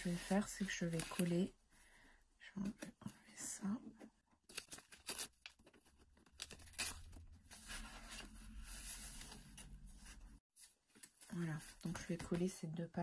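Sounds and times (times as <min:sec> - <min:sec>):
book pages rustling: 0:04.5 - 0:12.5.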